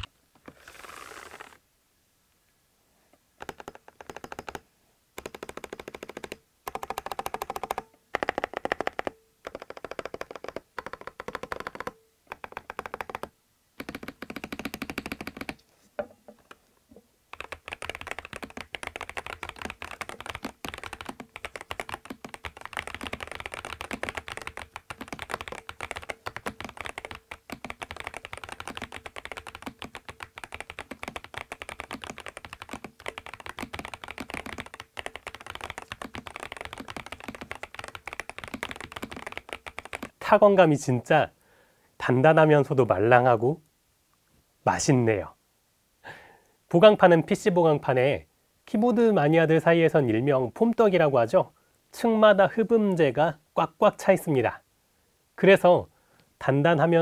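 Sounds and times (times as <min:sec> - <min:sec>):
typing on mechanical keyboard: 0:03.4 - 0:04.6, 0:05.2 - 0:15.6, 0:17.3 - 0:40.2.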